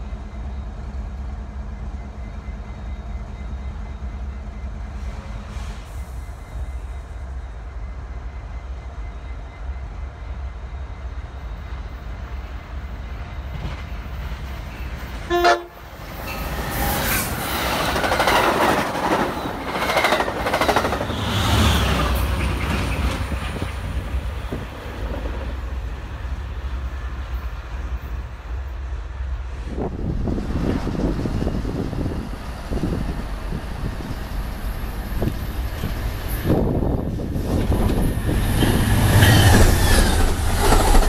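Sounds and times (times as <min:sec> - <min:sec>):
train cars rushing and clattering: 0:00.0 - 0:41.0
train horn toot: 0:15.3 - 0:15.9.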